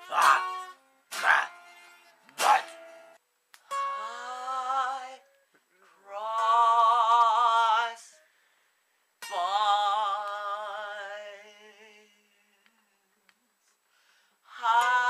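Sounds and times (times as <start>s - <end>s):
young man singing long notes: 3.7s - 5.3s, 9.2s - 13.0s.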